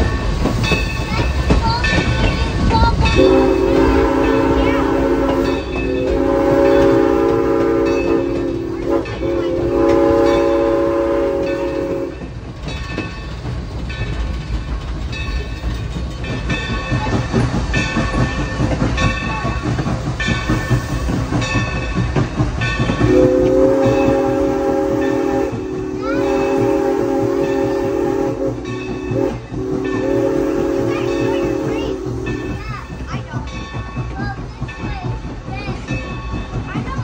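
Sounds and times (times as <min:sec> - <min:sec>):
locomotive running and wheel noise: 0:00.0 - 0:37.0
steam locomotive chime whistle: 0:03.0 - 0:12.4, 0:22.7 - 0:33.7.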